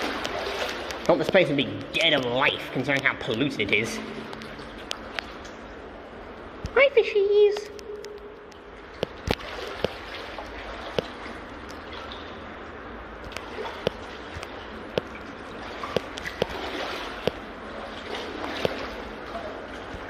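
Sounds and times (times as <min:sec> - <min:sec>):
brook water rushing: 0:00.0 - 0:06.5.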